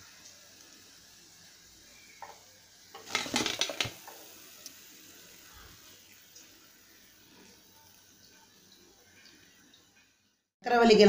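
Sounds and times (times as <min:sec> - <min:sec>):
deep-frying oil sizzling: 0:00.0 - 0:11.0
metal ladle clattering: 0:03.0 - 0:04.2.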